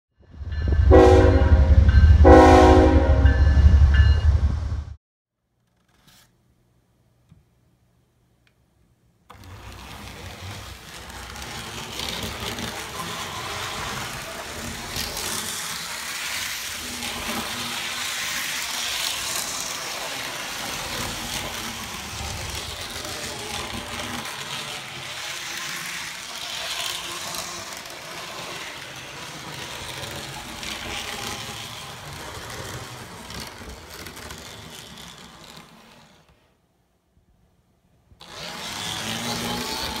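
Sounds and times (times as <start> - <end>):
model train motor whirring: 9.3 - 36.6, 38.2 - 40.0.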